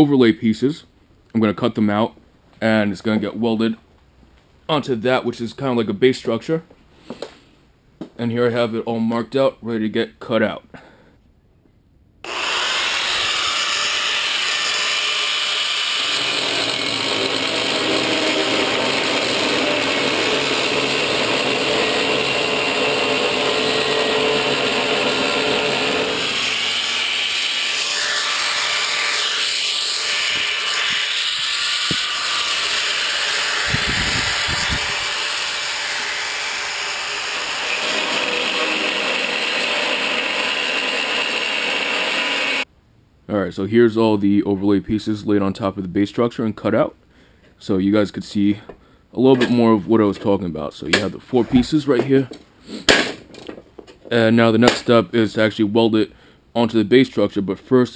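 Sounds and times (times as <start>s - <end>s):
angle grinder cutting steel: 12.3s - 42.7s.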